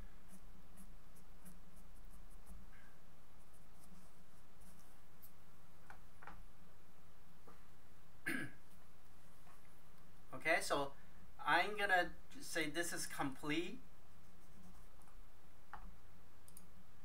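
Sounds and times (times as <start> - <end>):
steady low hum: 0.0 - 17.0
pencil scratching on paper: 0.2 - 5.3, 14.2 - 15.0.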